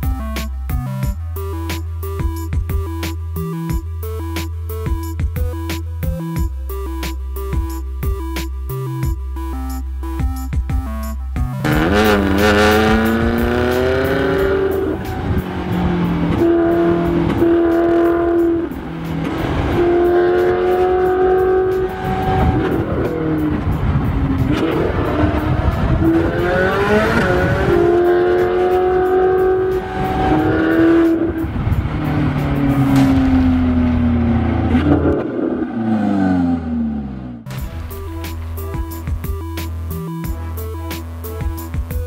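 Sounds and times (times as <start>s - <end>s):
car engine accelerating hard: 11.6s - 37.5s.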